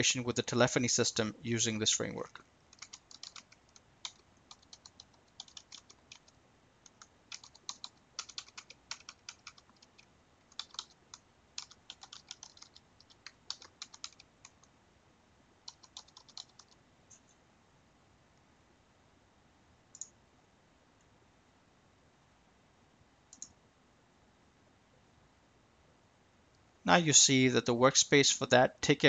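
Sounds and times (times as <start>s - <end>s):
keyboard typing: 2.7s - 14.7s, 15.6s - 16.8s.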